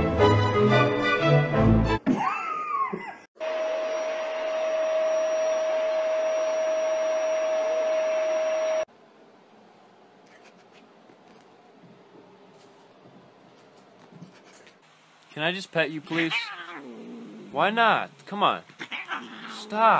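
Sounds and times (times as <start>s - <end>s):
electric blower motor whirring: 3.4s - 8.9s.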